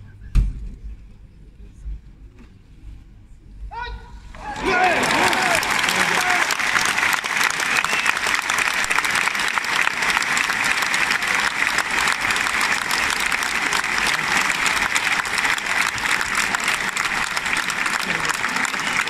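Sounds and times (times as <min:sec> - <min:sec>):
large crowd applauding: 0:04.3 - 0:19.0.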